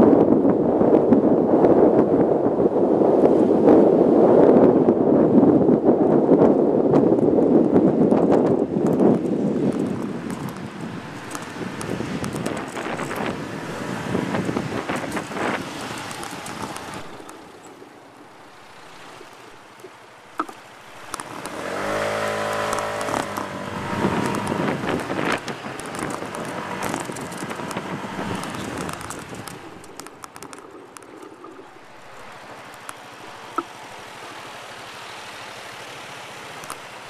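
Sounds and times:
wind buffeting microphone: 0.0 - 35.8
city street traffic: 7.4 - 37.0
vehicle engine passing: 10.6 - 17.7, 20.8 - 30.0.

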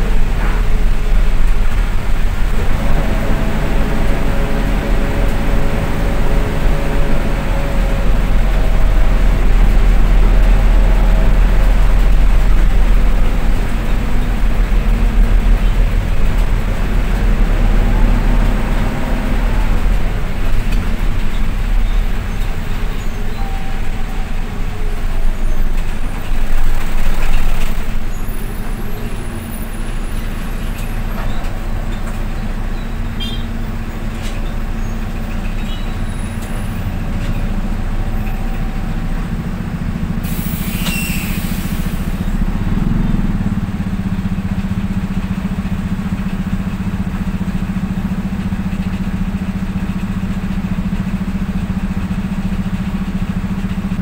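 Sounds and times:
bus engine hum: 0.0 - 54.0
road noise: 0.0 - 54.0
loud air hiss: 40.2 - 42.4.

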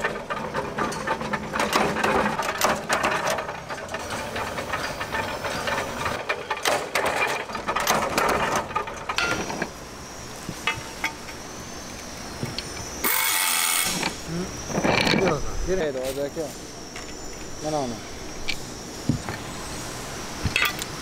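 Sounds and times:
faint high whine: 8.9 - 21.0.

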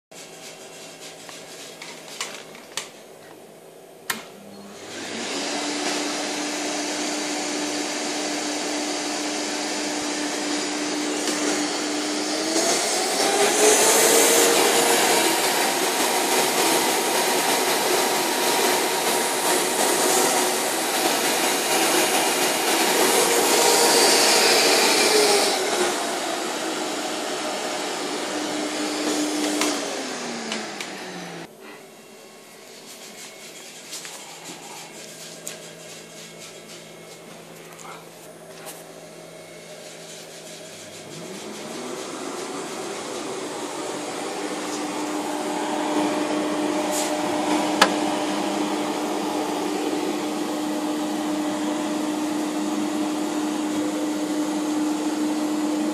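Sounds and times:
dust extractor motor whining: 4.1 - 31.5, 40.9 - 55.9.

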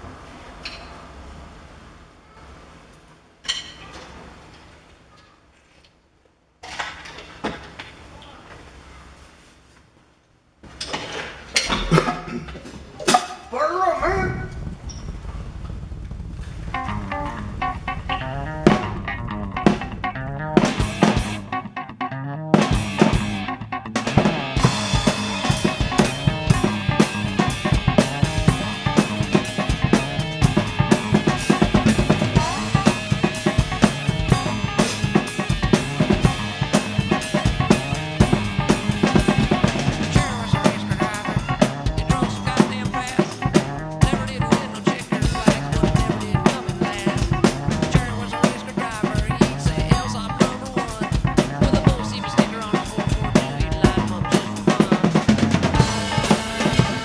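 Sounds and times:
rock song: 16.6 - 57.0
snare drum: 24.0 - 57.0
cymbals: 24.1 - 57.0.

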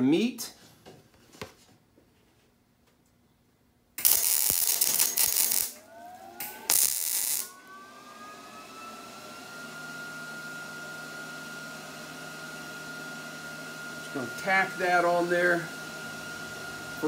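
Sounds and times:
welder crackling arc: 4.0 - 7.6.

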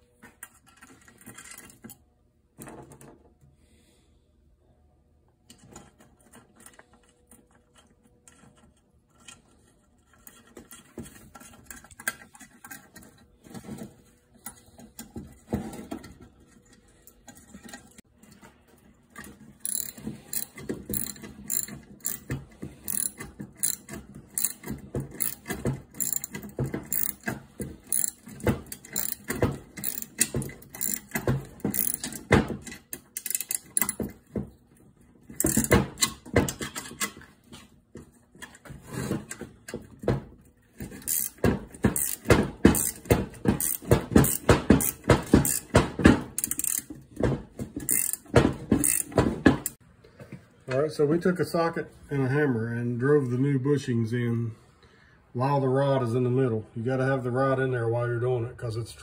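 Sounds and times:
ratchet wrench clicking: 19.6 - 32.3, 32.9 - 34.0, 35.4 - 35.8, 41.0 - 45.7, 46.4 - 46.9, 47.8 - 48.2, 48.8 - 49.2.

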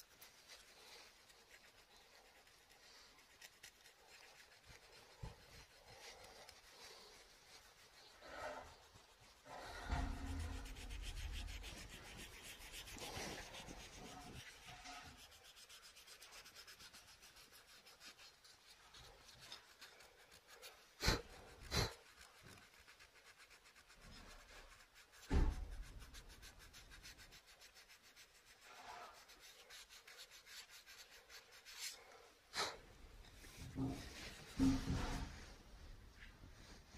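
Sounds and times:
hand tool scraping plaque: 9.4 - 15.8.

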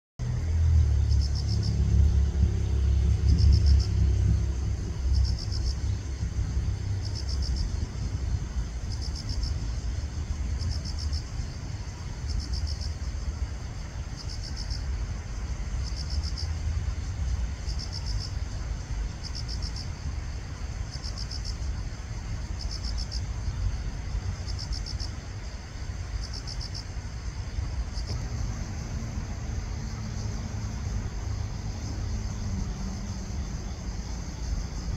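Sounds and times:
low rumble: 0.2 - 12.3
insect chirping trills: 0.2 - 34.9.

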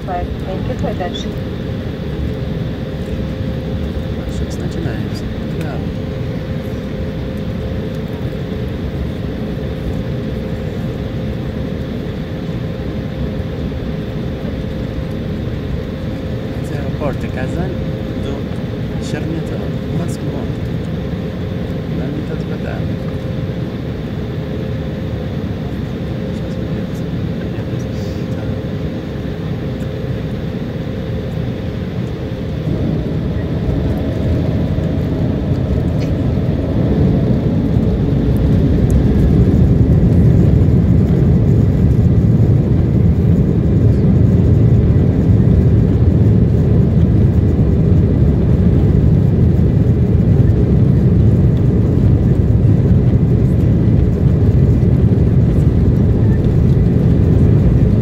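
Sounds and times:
faint engine whine: 0.0 - 58.0
jet engines spooling up: 13.2 - 45.0
runway roll rumble: 32.0 - 58.0.

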